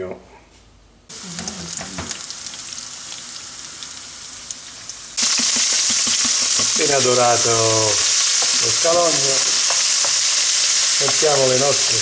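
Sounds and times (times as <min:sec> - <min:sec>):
shallot sizzling in oil: 0:01.1 - 0:12.0
knocks in frying pan: 0:08.3 - 0:10.3, 0:11.0 - 0:11.4.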